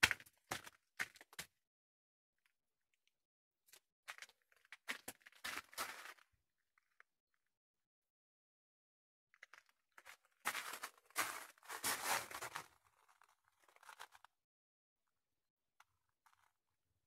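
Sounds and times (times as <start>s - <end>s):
footsteps crunching on gravel: 10.4s - 12.7s.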